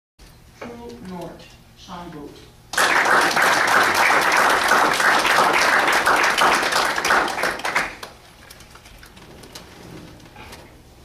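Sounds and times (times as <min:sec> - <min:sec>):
audience applauding: 0:02.7 - 0:08.4.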